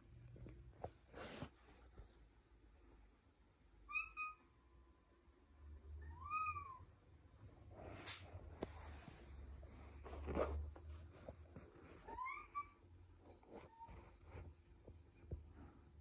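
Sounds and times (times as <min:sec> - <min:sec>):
rustling: 0:07.5 - 0:15.8.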